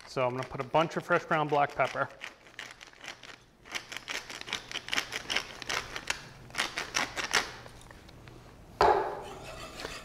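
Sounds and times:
pepper mill grinding: 0:00.0 - 0:07.7.

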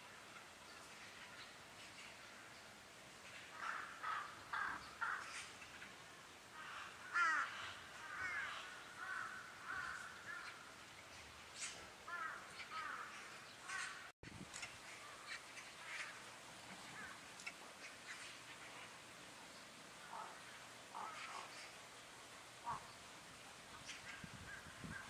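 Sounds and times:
magpies calling: 0:03.2 - 0:10.7, 0:11.6 - 0:14.1, 0:14.8 - 0:18.9, 0:20.0 - 0:21.8, 0:22.6 - 0:23.0.

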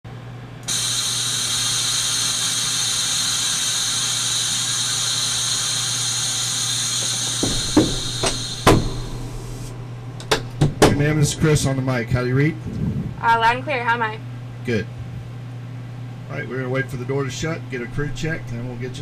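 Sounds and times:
steady hiss: 0:00.7 - 0:10.0
sharp clicks and knocks: 0:07.0 - 0:11.1
low hum: 0:07.0 - 0:19.0.

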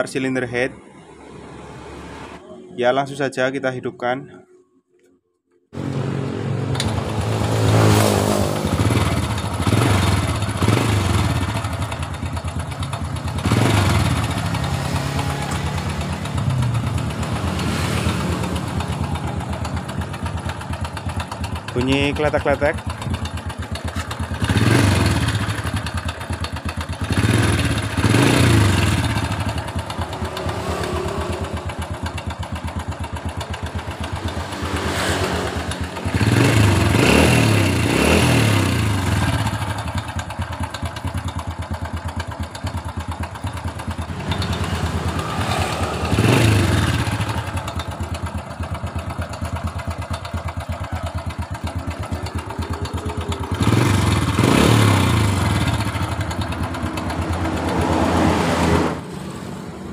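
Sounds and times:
motorcycle engine idling and revving: 0:05.7 - 0:59.9.

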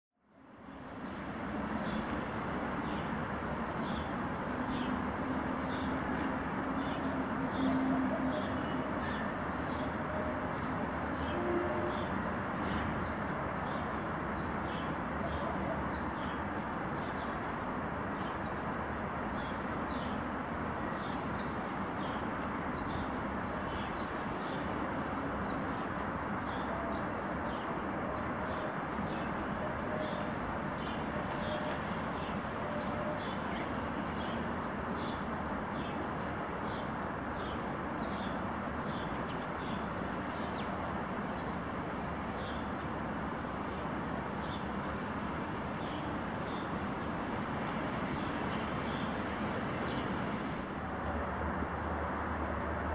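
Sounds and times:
hum of distant traffic: 0:00.2 - 0:52.9.

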